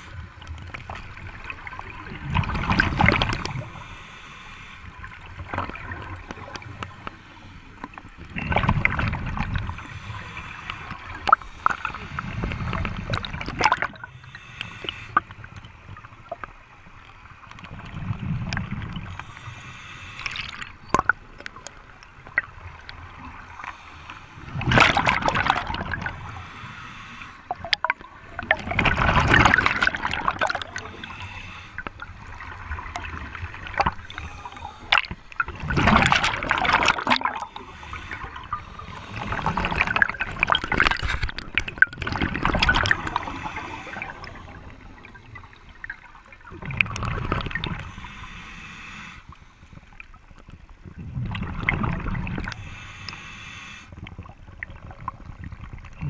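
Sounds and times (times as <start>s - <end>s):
exhaled bubbles underwater: 0.0s - 3.9s, 5.0s - 7.1s, 7.7s - 14.4s, 15.2s - 19.3s, 24.4s - 26.4s, 27.5s - 48.1s, 50.0s - 53.2s, 53.9s - 56.0s
regulator hiss: 19.1s - 20.4s, 26.2s - 27.5s, 30.9s - 31.8s, 43.0s - 44.7s, 47.8s - 49.7s, 52.5s - 53.9s.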